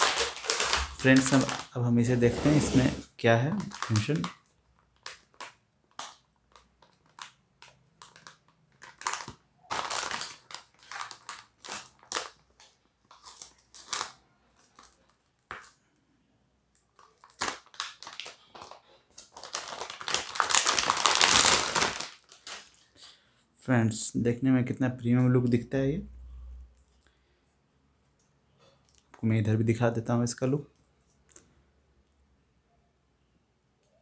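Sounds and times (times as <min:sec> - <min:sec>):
plastic bag crinkling: 0:00.0 - 0:15.7, 0:16.9 - 0:23.2.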